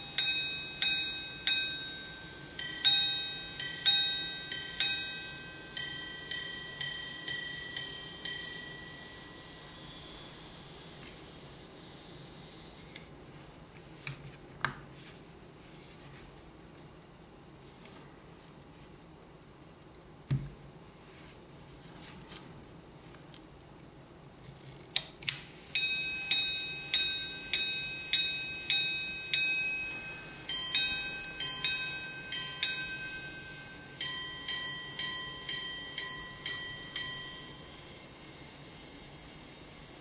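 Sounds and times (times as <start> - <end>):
pocket watch striking gongs: 0.0 - 11.3, 25.7 - 38.2
repeater mechanism click: 23.2 - 34.2.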